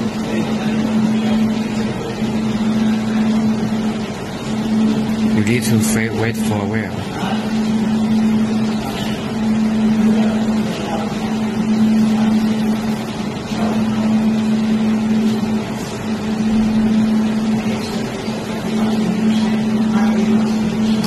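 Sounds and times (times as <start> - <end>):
welding machine humming: 0.0 - 21.0.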